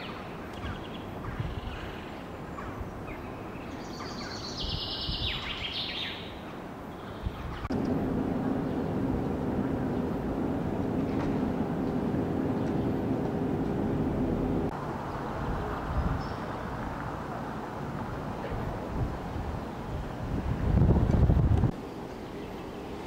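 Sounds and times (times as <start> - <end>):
outdoor background noise: 0.0 - 23.0
vehicle engine humming: 7.7 - 21.8.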